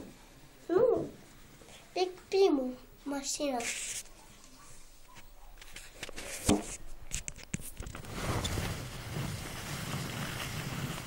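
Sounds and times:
low rumbling rustle: 0:07.8 - 0:11.0.

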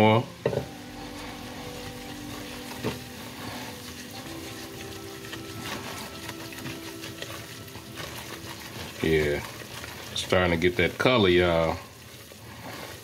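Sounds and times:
food sizzling in a pot: 0:00.0 - 0:13.0
spatula stirring: 0:00.0 - 0:13.0.

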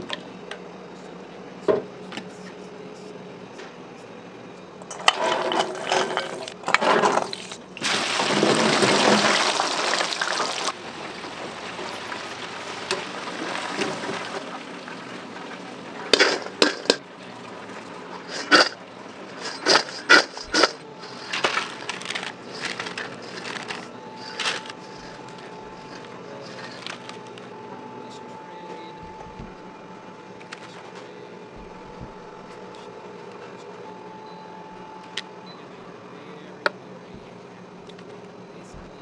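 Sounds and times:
deep fryer oil sizzling: 0:07.1 - 0:23.5
metal fry basket clattering: 0:16.1 - 0:17.0.

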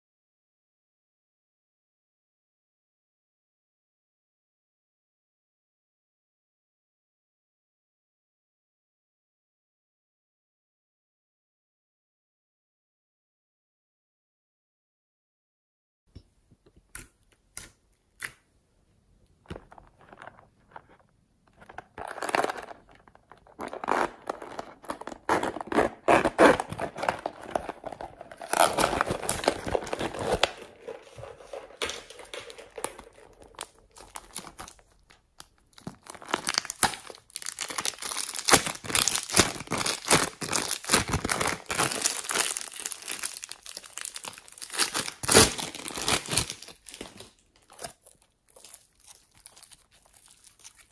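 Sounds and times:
plastic crinkling: 0:19.4 - 0:50.9.

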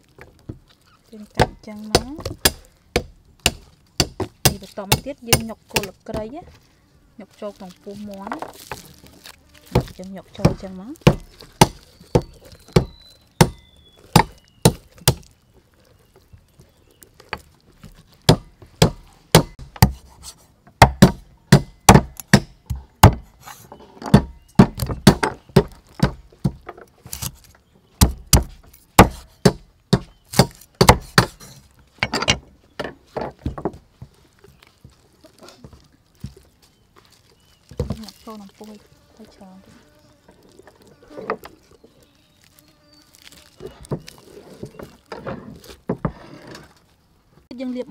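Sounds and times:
cleaver chopping on wooden board: 0:01.4 - 0:06.3, 0:09.7 - 0:15.3, 0:18.2 - 0:20.1, 0:20.8 - 0:23.3, 0:24.1 - 0:27.3, 0:28.0 - 0:31.6.

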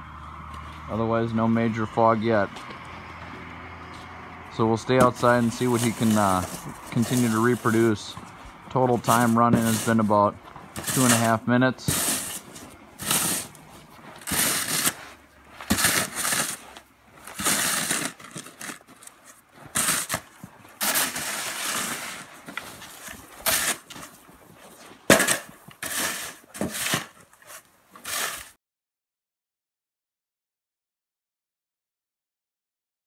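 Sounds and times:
shovel scraping snow: 0:04.6 - 0:28.6.

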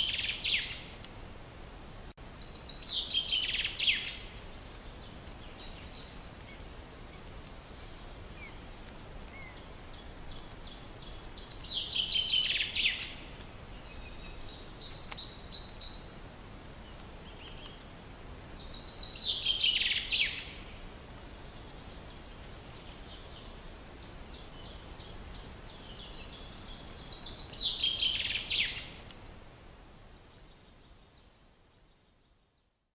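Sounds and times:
bird song: 0:00.0 - 0:01.0, 0:02.2 - 0:16.2, 0:16.8 - 0:20.8, 0:21.4 - 0:29.0, 0:30.0 - 0:32.9
low background hiss: 0:00.0 - 0:32.9
soft bird chirping: 0:02.2 - 0:16.2, 0:16.8 - 0:20.7, 0:21.4 - 0:29.0.

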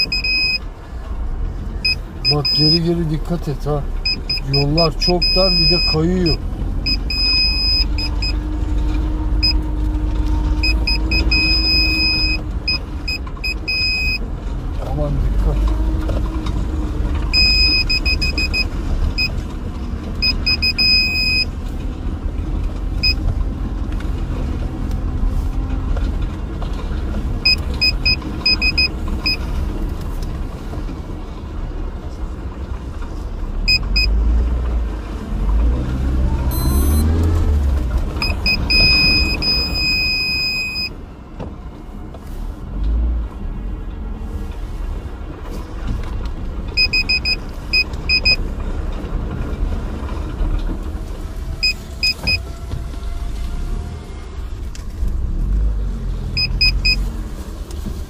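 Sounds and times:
rapid electronic parking beeps: 0:00.0 - 0:00.7, 0:01.8 - 0:02.9, 0:04.0 - 0:08.4, 0:09.4 - 0:09.6, 0:10.6 - 0:14.2, 0:17.3 - 0:19.4, 0:20.2 - 0:21.5, 0:23.0 - 0:23.2, 0:27.4 - 0:29.4, 0:33.7 - 0:34.1, 0:36.5 - 0:37.1, 0:38.2 - 0:41.0, 0:46.7 - 0:48.4, 0:51.6 - 0:52.4, 0:56.4 - 0:57.0
car engine and tyres rumbling: 0:00.0 - 0:58.0.

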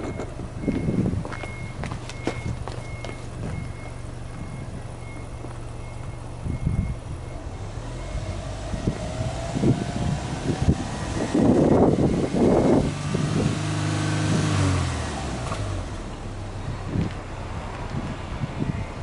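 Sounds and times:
car engine idling: 0:00.0 - 0:07.6
faint high beep: 0:00.0 - 0:08.4.

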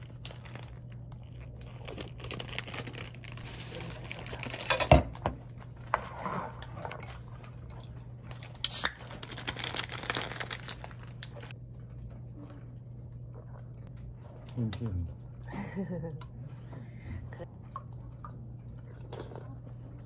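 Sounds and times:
rustling and crinkling handling: 0:00.0 - 0:07.6, 0:08.3 - 0:11.5
steady low hum: 0:10.6 - 0:20.0.

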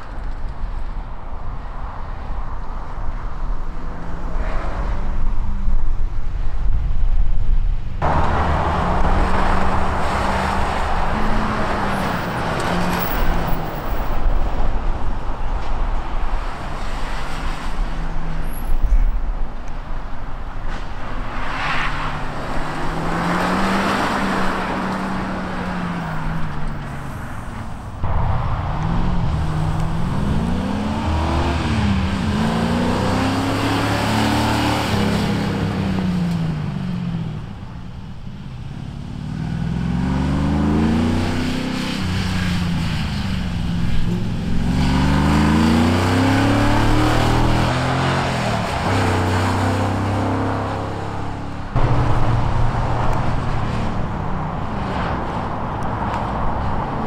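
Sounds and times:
tyre and road noise: 0:00.0 - 0:57.0
car engine revving hard: 0:28.8 - 0:35.1, 0:44.5 - 0:51.2.

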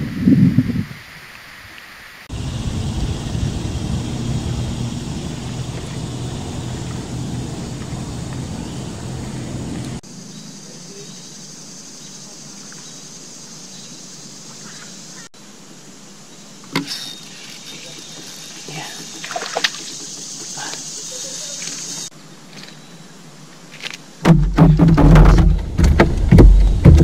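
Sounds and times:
wind rumbling on microphone: 0:00.0 - 0:01.6, 0:02.3 - 0:10.0
outdoor background hiss: 0:00.0 - 0:27.0.

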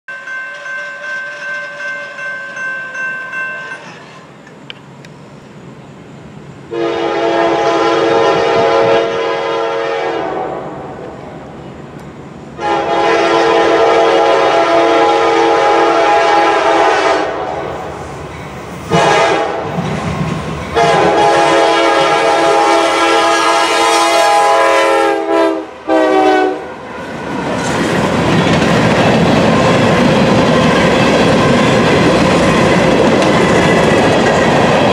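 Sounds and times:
crossing bell ringing: 0:00.1 - 0:04.4
train cars rumbling and clattering: 0:00.1 - 0:34.9
locomotive air horn: 0:00.5 - 0:02.2, 0:06.7 - 0:10.9, 0:12.6 - 0:17.8, 0:18.9 - 0:19.7, 0:20.8 - 0:26.7.

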